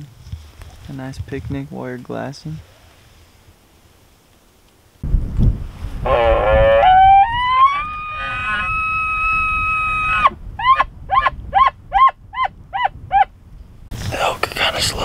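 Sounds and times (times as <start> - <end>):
elk bugling whistle: 6.1 - 13.2.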